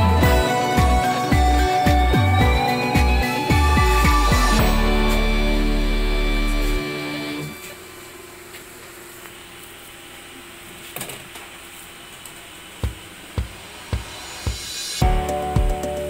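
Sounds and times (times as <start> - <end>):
background music: 0.0 - 7.6, 14.0 - 16.0
machine humming: 0.0 - 9.1.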